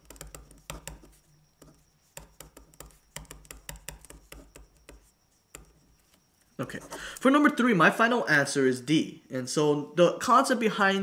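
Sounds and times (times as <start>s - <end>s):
pen scratching on paper: 0.0s - 6.1s.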